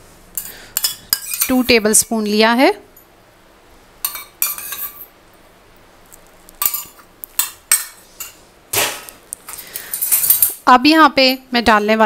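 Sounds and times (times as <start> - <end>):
metal spoon clinking containers: 6.6 - 8.4.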